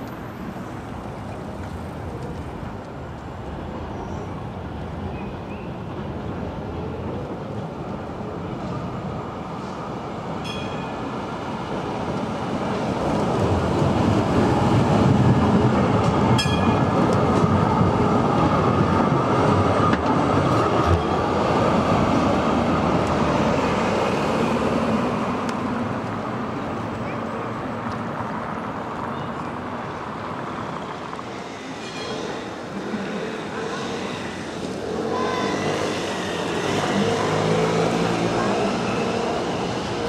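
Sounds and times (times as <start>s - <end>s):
tram rumble and wheel noise: 0.0s - 40.0s.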